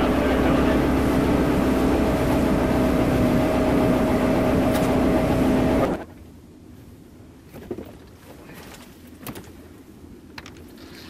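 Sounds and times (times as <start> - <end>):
motorboat engine droning: 0.0 - 6.2
wind and water rushing: 0.0 - 10.2.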